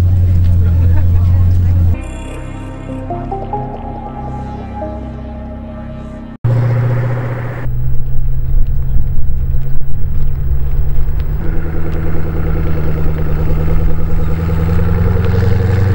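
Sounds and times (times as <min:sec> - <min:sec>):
car engine rumbling: 0:00.0 - 0:02.0, 0:06.4 - 0:15.9.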